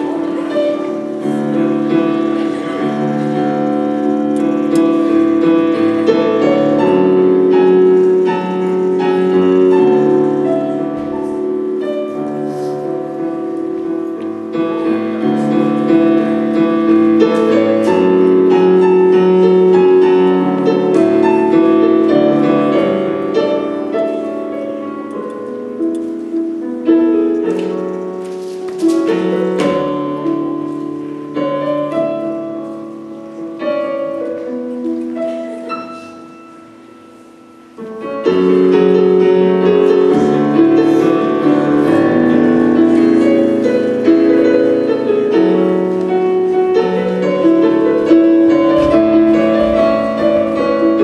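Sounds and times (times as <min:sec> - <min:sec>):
solo piano music: 0:00.0 - 0:51.0.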